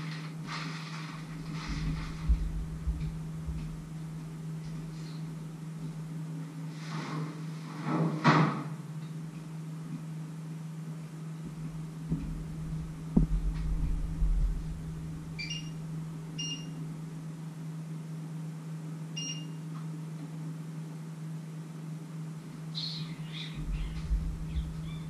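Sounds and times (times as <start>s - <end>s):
rustling clatter: 0.0s - 3.9s
steady low hum: 0.0s - 25.0s
dull thumps: 1.5s - 4.0s, 11.5s - 16.2s, 23.6s - 25.0s
short electronic stove beeps: 19.2s - 19.6s.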